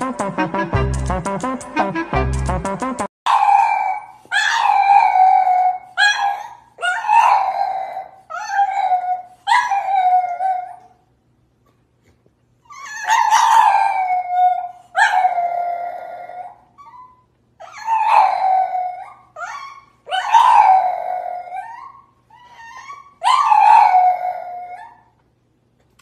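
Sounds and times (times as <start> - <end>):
dog crying: 3.3 - 11.0, 12.6 - 25.1
dog howling: 3.3 - 11.0, 12.7 - 17.1, 17.7 - 25.1.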